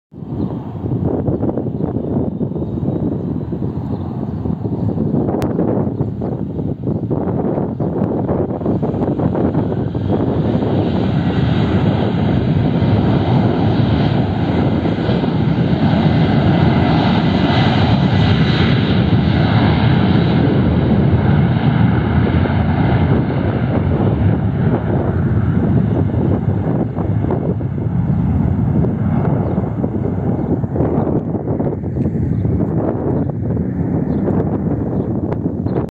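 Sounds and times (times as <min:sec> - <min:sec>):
jet engines at takeoff thrust: 0:00.1 - 0:35.9
high fan whine: 0:20.4 - 0:35.9.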